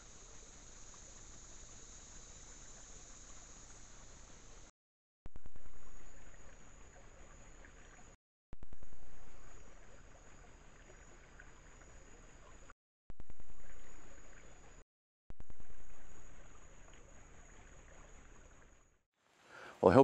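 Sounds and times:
stream gurgling: 0.0 - 4.7, 5.4 - 14.8, 15.4 - 19.0.

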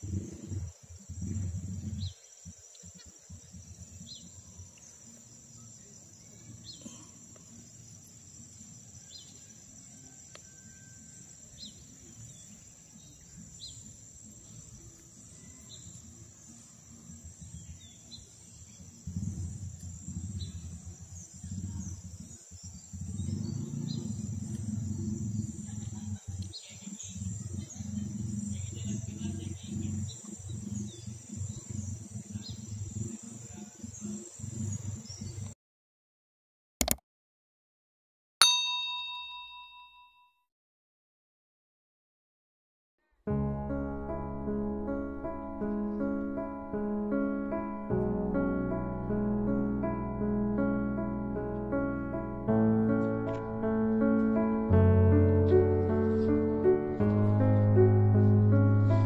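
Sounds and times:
low rumbling noise: 0.0 - 2.5, 18.7 - 35.5, 43.3 - 59.0
forest insects chorus: 0.0 - 35.6
insect chirps: 0.0 - 35.6.

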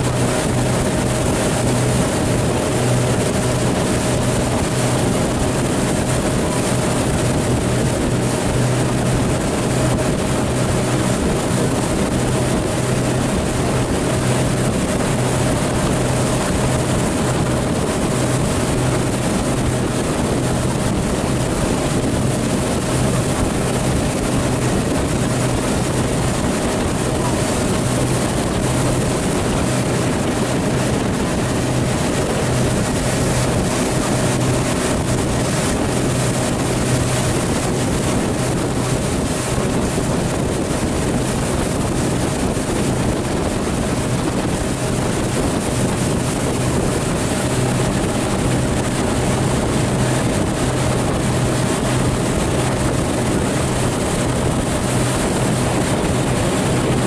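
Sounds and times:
motorboat engine droning: 0.0 - 57.0
water rushing past hull: 0.0 - 57.0
wind buffeting microphone: 0.0 - 57.0.

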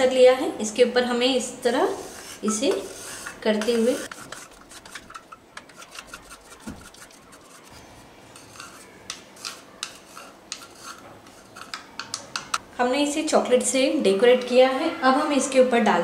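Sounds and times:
chocolate scraping on slicer blade: 1.9 - 7.8, 8.4 - 11.8.

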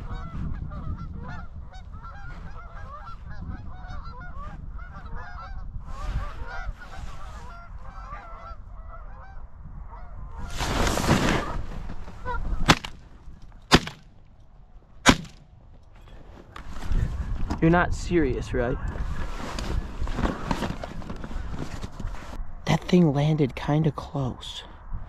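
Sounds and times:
geese honking: 0.0 - 10.5
shotgun blasts: 12.6 - 13.0, 13.7 - 14.1, 15.0 - 15.5.

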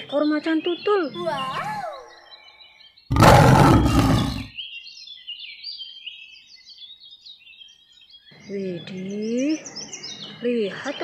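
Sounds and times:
big cat roaring: 3.1 - 4.5.

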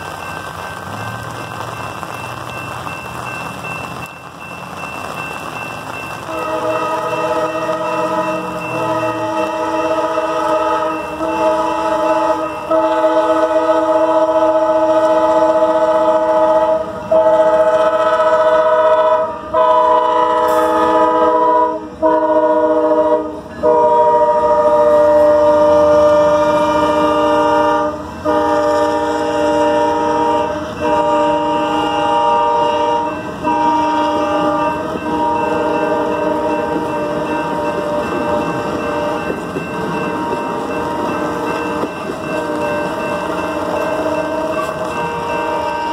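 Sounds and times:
train cars rolling on rails: 0.0 - 45.9
locomotive air horn blasts: 6.3 - 39.3.

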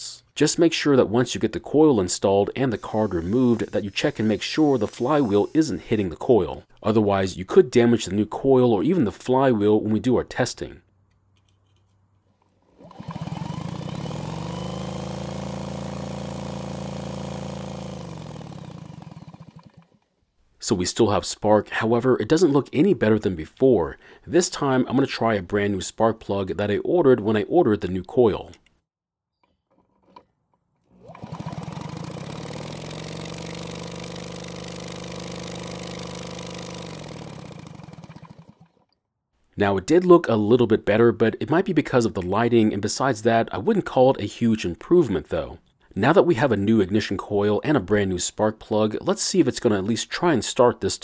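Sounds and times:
engine strokes pulsing: 2.5 - 6.1, 12.7 - 20.0, 31.0 - 38.8
cordless drill whine: 2.6 - 6.0, 12.8 - 19.8.

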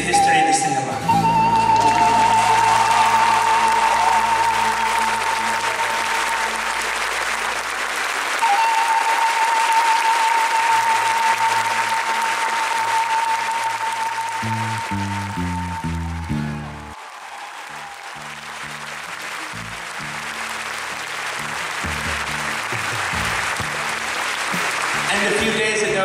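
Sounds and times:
audience applauding: 1.1 - 26.0
bass line: 14.3 - 17.0, 21.3 - 26.0.

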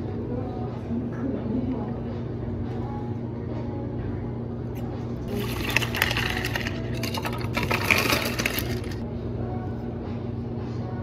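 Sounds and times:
ice cubes clinking into plastic cup: 5.3 - 9.0.

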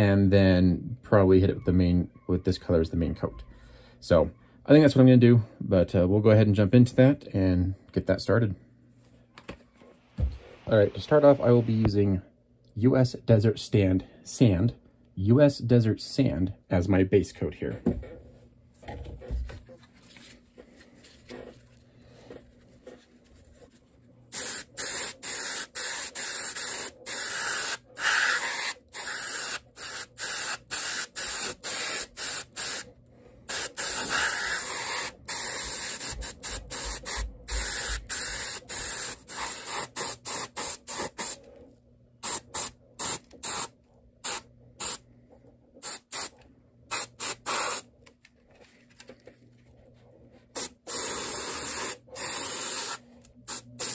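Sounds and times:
airbrush spraying in hissing bursts: 24.3 - 32.9, 33.5 - 41.4, 42.2 - 45.0, 45.8 - 46.3, 46.9 - 47.8, 50.6 - 53.9.

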